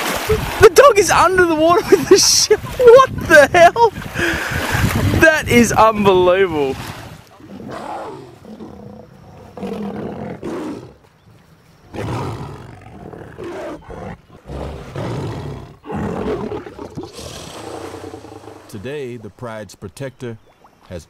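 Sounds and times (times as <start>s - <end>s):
lions snarling and growling: 7.4s - 11.1s, 11.8s - 18.8s.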